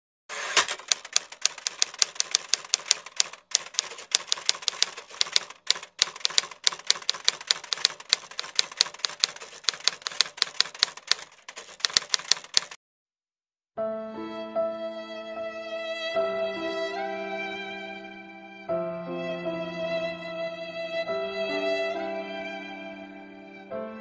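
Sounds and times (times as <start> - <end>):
typewriter keys clacking: 0.3 - 12.8.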